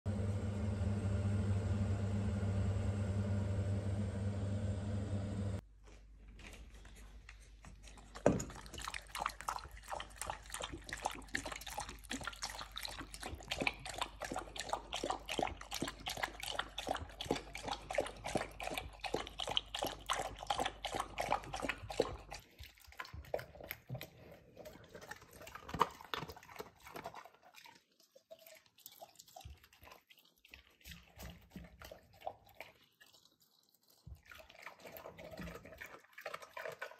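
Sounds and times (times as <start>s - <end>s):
dog lapping from metal bowl: 7.7s - 36.9s.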